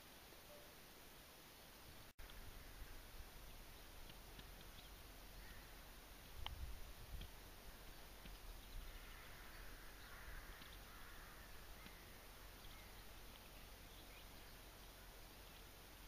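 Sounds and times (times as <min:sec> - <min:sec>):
faint bird call: 0:04.6 - 0:05.9, 0:08.6 - 0:15.7.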